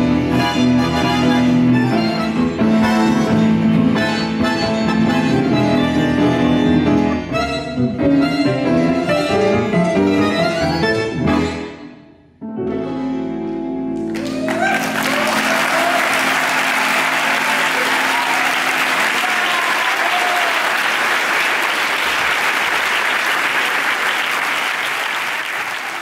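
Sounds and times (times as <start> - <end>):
audience applause: 14.0 - 26.0
crowd shouts: 14.2 - 21.0.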